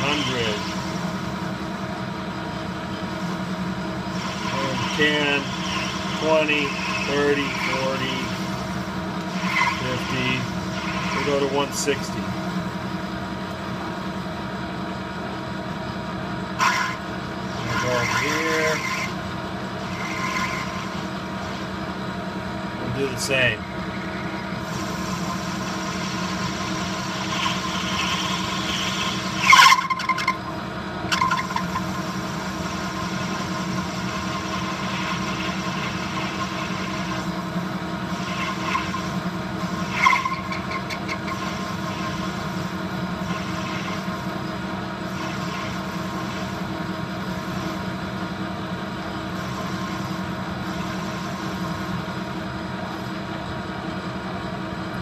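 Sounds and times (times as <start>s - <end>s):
cutting tool squealing: 0.0s - 1.0s, 4.0s - 12.3s, 16.6s - 21.8s, 22.8s - 30.5s, 31.1s - 37.4s, 38.0s - 46.5s
lathe humming: 0.0s - 55.0s.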